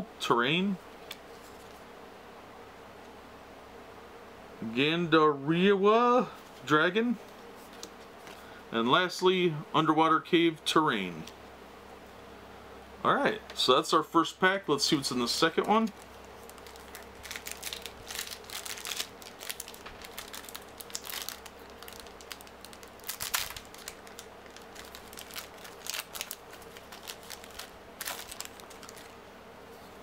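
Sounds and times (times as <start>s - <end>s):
wrapper crinkling: 15.4s - 29.2s.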